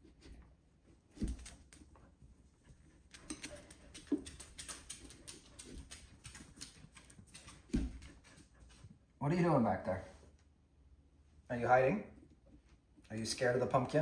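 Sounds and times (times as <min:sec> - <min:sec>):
dog claws clicking on wood floor: 0:03.1 - 0:08.4.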